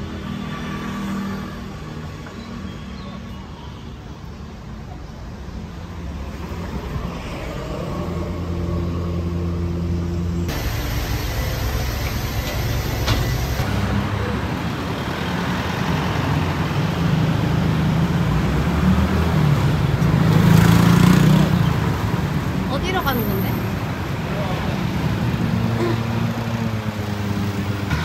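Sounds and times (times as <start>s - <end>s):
cars driving past: 5.8s - 28.0s
steady engine hum: 6.0s - 18.8s
motor rickshaw engine passing: 7.6s - 28.0s.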